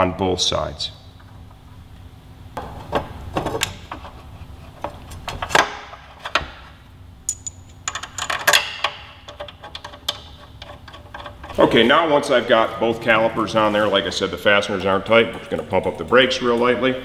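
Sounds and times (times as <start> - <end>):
metallic clinks and clicks of bolts: 7.3 - 11.6.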